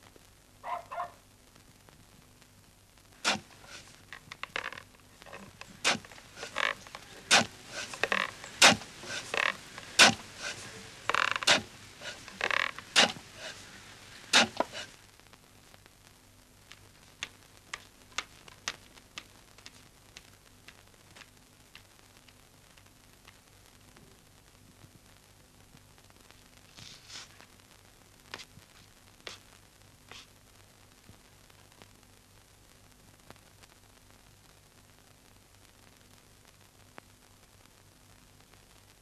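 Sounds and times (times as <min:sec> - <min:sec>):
short creaks: 0:03.3 - 0:14.9.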